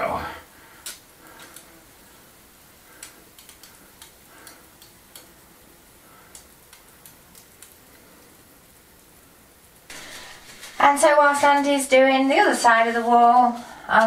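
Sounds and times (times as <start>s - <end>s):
sharp ticks: 2.9s - 5.4s
short hisses of spray: 9.9s - 11.2s.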